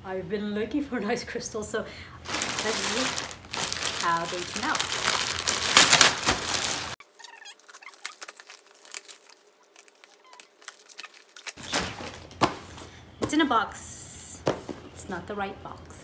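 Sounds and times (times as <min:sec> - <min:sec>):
plastic bag crinkling: 0:02.2 - 0:12.4
parcel tape ripping: 0:02.4 - 0:12.0.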